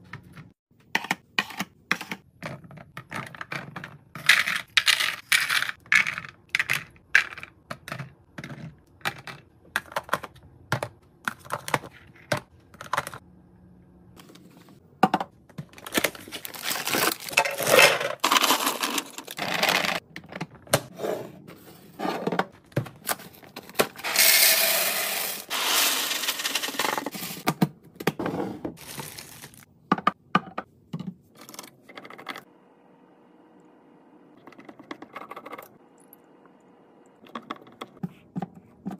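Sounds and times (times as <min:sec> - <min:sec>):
dry food clattering into containers: 0:15.0 - 0:20.7, 0:22.3 - 0:27.6.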